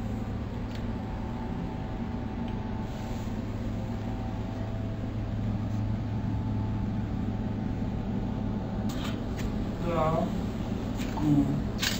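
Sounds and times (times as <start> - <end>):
low mechanical hum: 0.0 - 11.9.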